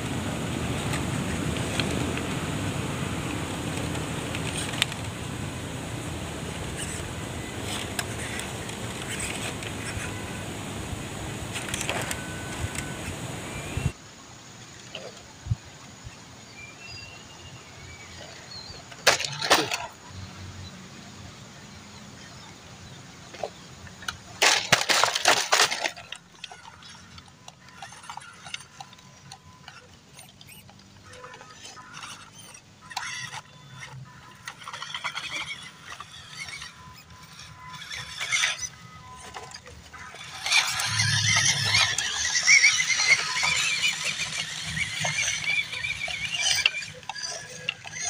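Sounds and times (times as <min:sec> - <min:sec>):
small electric motors whining: 0:00.6 - 0:14.0, 0:23.3 - 0:48.0
faint bird chirps: 0:15.6 - 0:18.9.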